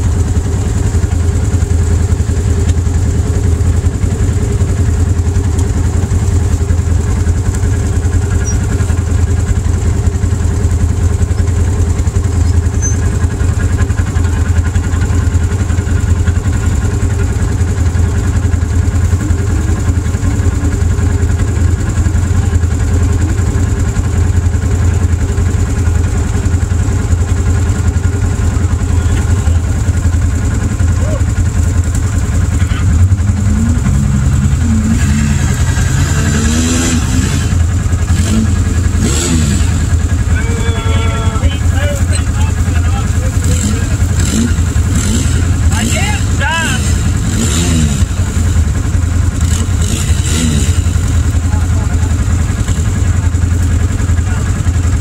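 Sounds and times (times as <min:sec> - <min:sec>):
vehicle engine idling: 0:00.0 - 0:55.0.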